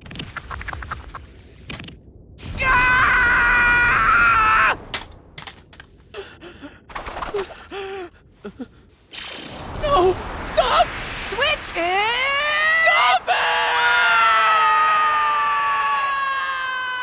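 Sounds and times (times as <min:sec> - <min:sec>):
high-pitched cartoon scream: 0:12.7 - 0:17.0.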